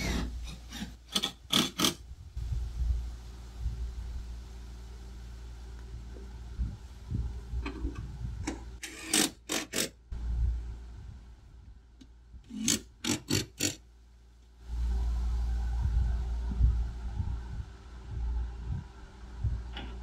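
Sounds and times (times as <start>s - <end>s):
steady low rumble: 2.0s - 8.8s, 10.0s - 12.5s, 13.9s - 20.0s.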